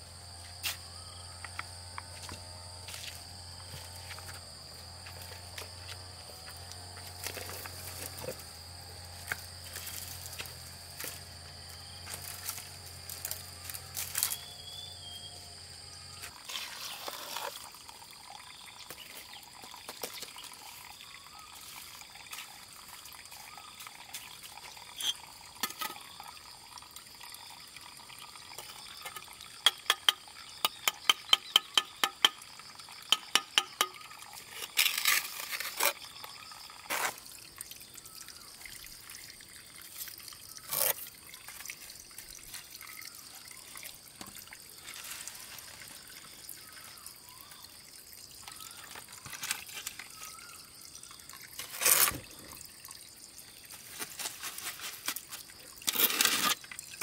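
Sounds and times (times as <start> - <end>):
high insect drone: 0.0 - 57.0
trowel scraping wet mortar: 16.3 - 17.7, 33.8 - 37.2, 51.6 - 52.4, 54.6 - 56.7
trowel tapping bricks: 29.6 - 32.4, 33.1 - 34.0.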